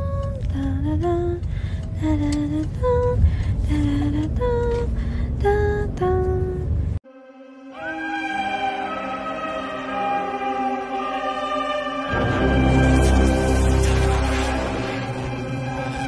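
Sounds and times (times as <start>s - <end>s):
steady low rumble: 0.0s - 7.0s.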